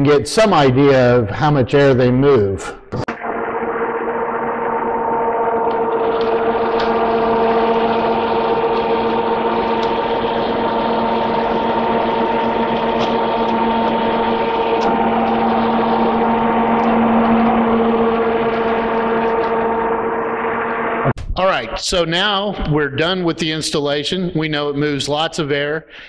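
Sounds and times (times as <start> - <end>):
electric fans rushing air: 3.1 - 21.1
fan motor hum: 3.1 - 21.1.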